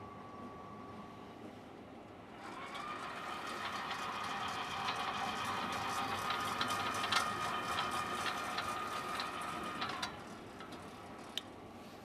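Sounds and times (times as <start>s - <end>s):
tablet press whining: 2.5s - 11.5s.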